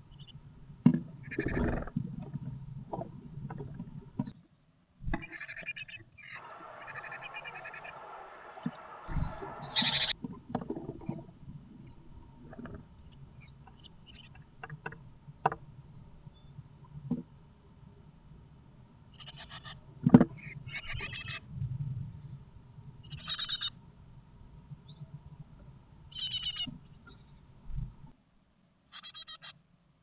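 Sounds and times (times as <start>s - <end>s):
nestlings begging calls: 5.2s - 10.2s, 23.0s - 23.7s, 26.1s - 26.7s, 28.9s - 29.5s.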